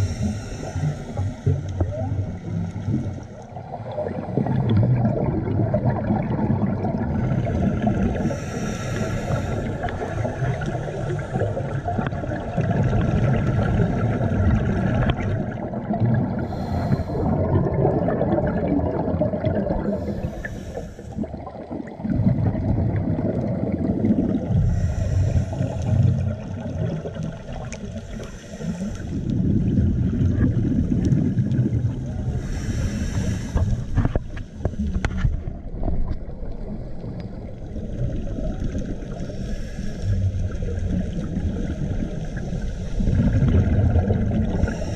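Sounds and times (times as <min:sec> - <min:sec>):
regulator hissing inhalation: 0:00.0 - 0:01.5, 0:08.2 - 0:10.0, 0:16.4 - 0:17.3, 0:19.8 - 0:21.2, 0:24.6 - 0:26.2, 0:28.1 - 0:29.2, 0:32.4 - 0:33.9, 0:39.2 - 0:40.2, 0:44.5 - 0:44.9
exhaled bubbles rumbling underwater: 0:00.0 - 0:44.9.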